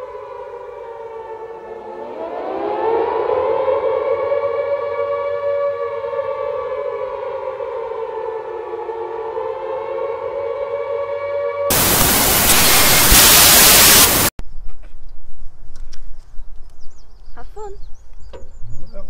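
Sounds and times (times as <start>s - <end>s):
air-raid siren wailing: 0.0s - 14.3s
tv static hiss: 11.7s - 14.3s.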